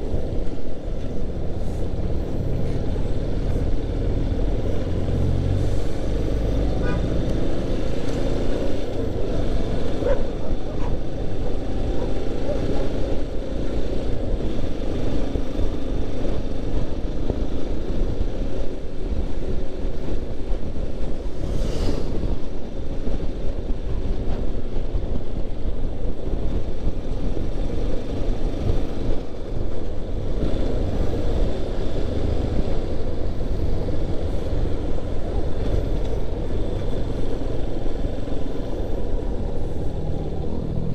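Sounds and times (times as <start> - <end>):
road and wind noise: 0.0 - 40.9.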